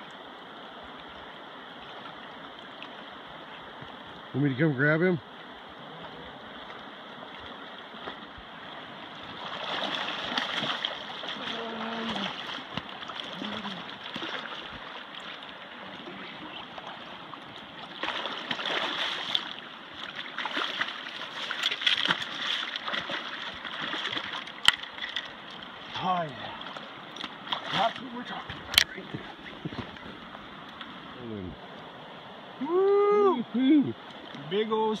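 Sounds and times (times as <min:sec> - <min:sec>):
river water rushing: 0:00.0 - 0:35.0
fish splashing: 0:09.2 - 0:25.8.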